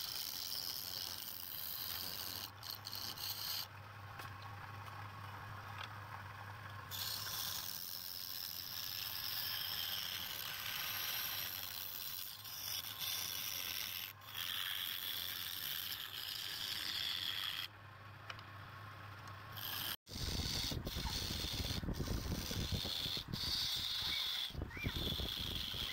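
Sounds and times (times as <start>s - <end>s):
wood scraping on lathe: 0.0s - 3.7s, 6.9s - 17.7s, 19.6s - 25.9s.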